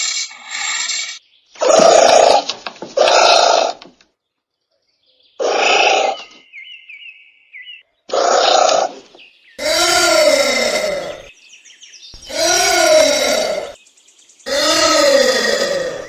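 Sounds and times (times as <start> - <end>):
anteater hoarse calls: 9.6 - 11.3, 12.2 - 13.8, 14.5 - 16.0
faint high twittering trill: 12.1 - 16.0.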